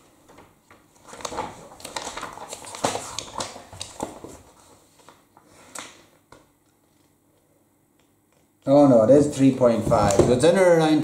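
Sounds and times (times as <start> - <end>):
objects rustling and clicking: 0.2 - 7.5.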